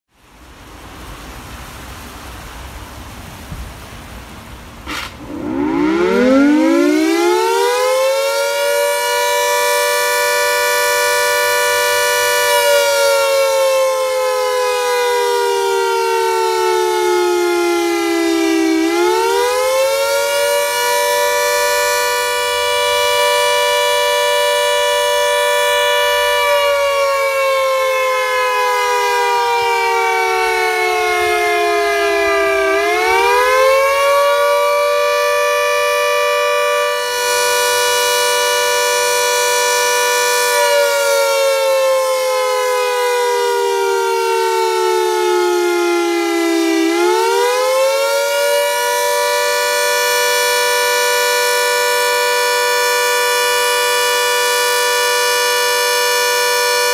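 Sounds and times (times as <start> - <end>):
wailing warning siren: 4.9 - 56.9.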